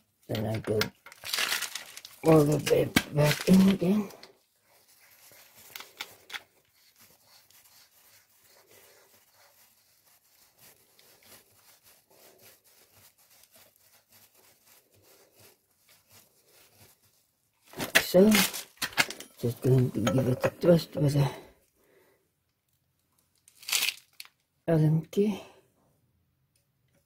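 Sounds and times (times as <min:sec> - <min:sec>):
faint rubbing and clicks: 0:00.2 - 0:20.8.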